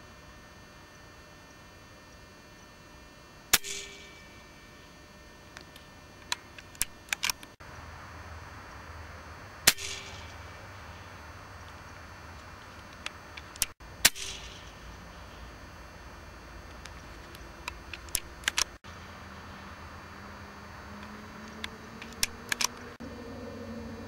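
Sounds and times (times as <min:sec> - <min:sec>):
air rifle shots: 0:03.5 - 0:04.3, 0:09.6 - 0:11.1, 0:13.4 - 0:15.4.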